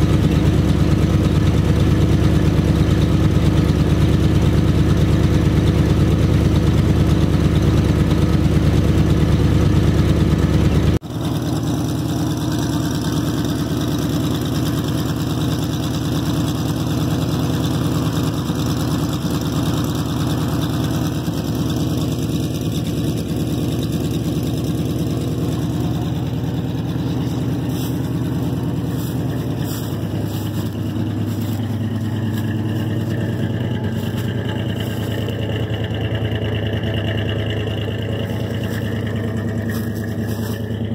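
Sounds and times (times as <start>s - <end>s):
truck engine idling: 0.0s - 40.9s.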